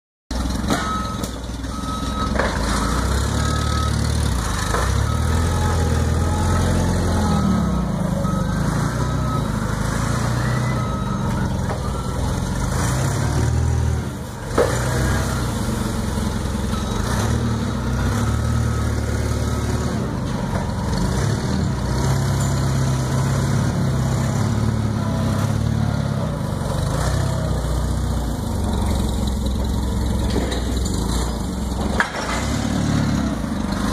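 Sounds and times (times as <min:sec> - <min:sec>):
forklift engine running: 0:00.3 - 0:33.9
reversing alarm beeping: 0:00.7 - 0:13.9, 0:15.0 - 0:20.2.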